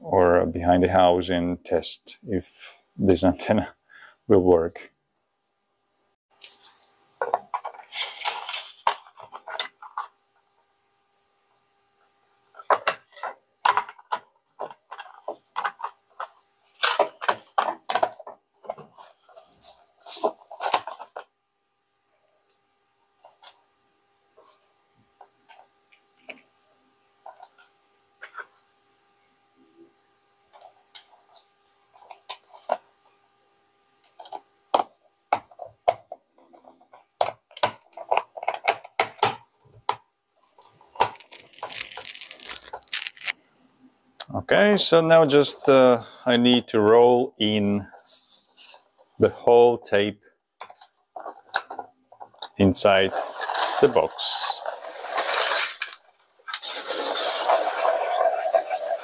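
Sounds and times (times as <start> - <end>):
scratchy noise: 40.4 - 43.4, 56.6 - 59.0.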